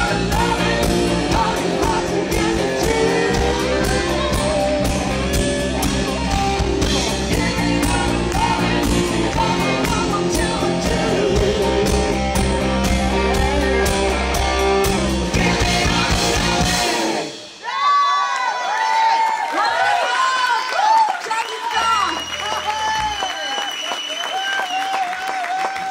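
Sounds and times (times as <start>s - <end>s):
woman singing: 0.0s - 5.1s, 6.9s - 13.7s
live rock band playing: 0.0s - 17.6s.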